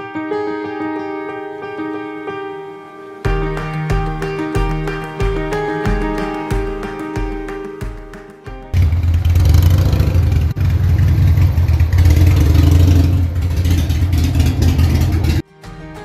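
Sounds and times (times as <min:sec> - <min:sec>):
motorcycle engine running: 0:08.8 - 0:15.4.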